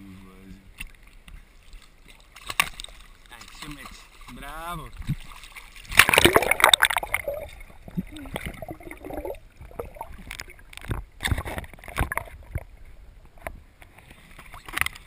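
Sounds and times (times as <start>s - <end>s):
muffled water sloshing underwater: 0.6s - 15.0s
sharp splashes: 1.7s - 10.4s.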